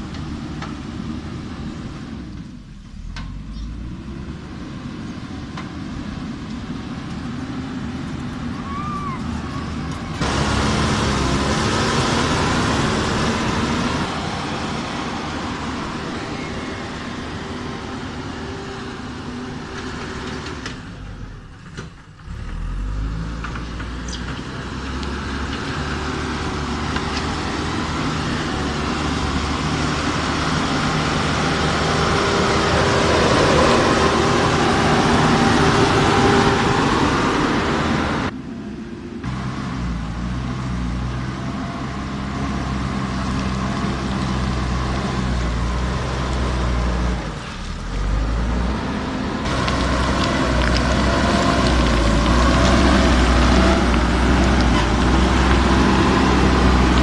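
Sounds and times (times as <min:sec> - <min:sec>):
diesel engine under load: 0:00.0 - 0:57.0
stones scraping: 0:49.5 - 0:55.8.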